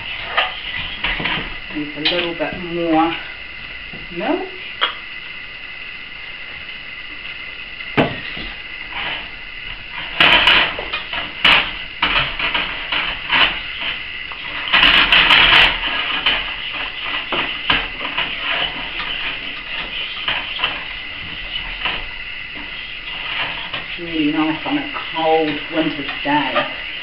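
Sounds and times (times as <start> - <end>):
utensil scraping steel saucepan: 0.0 - 2.5, 10.2 - 27.0.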